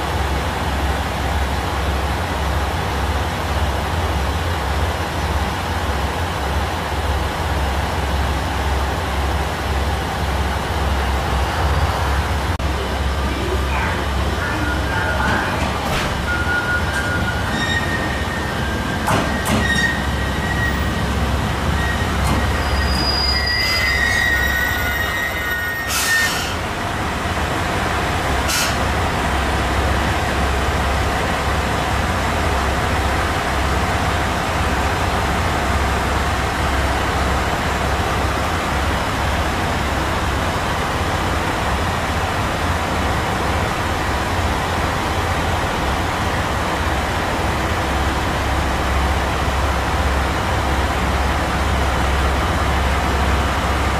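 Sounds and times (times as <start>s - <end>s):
wheels and brakes squealing: 14.4s - 21.0s, 21.7s - 26.6s.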